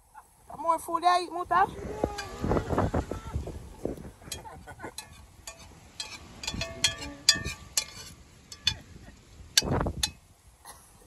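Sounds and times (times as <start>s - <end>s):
scraping rustle: 1.8s - 8.7s
dishes clinking: 4.2s - 8.9s.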